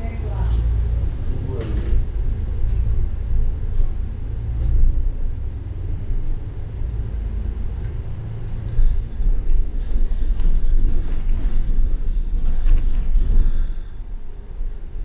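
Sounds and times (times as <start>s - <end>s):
bus engine rumble: 0.0s - 15.0s.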